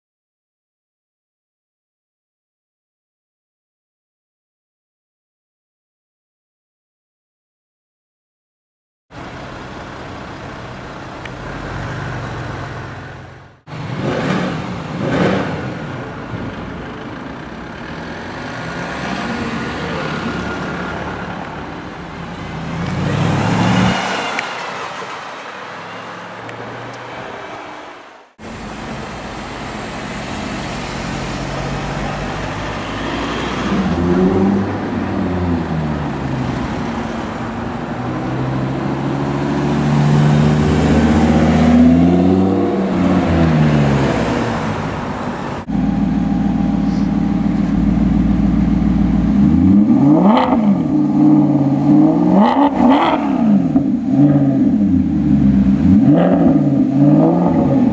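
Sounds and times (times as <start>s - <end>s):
cars driving through traffic: 9.1s - 57.9s
car engine revving: 13.5s - 16.2s, 37.8s - 57.9s
loud engine passing by: 22.5s - 35.9s, 38.0s - 57.9s.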